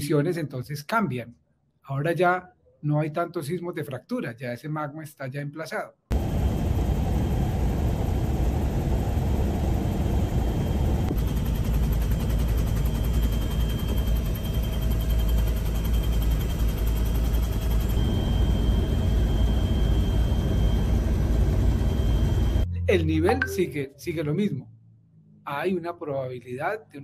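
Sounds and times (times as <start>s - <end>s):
helicopter rotor throb: 6.1s - 22.7s
thin steady whine: 6.1s - 23.8s.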